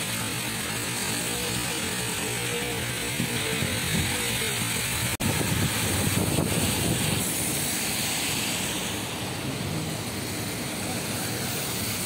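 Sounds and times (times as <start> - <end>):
heavy rain: 0.0 - 12.0
wind rumbling on microphone: 3.1 - 8.2.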